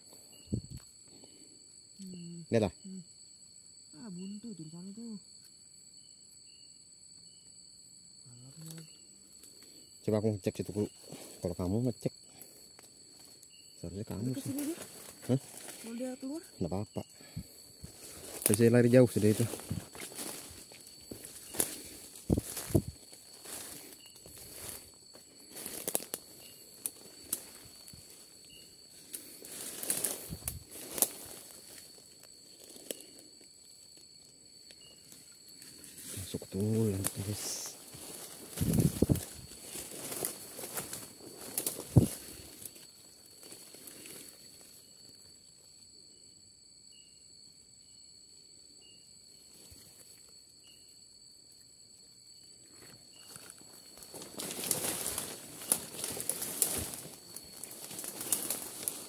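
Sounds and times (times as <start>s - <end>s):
insect drone: 0.0s - 59.0s
footsteps through rustling undergrowth: 17.8s - 18.6s, 19.2s - 32.8s, 37.7s - 44.4s, 53.2s - 59.0s
twigs snapping: 38.0s - 42.2s, 54.2s - 59.0s.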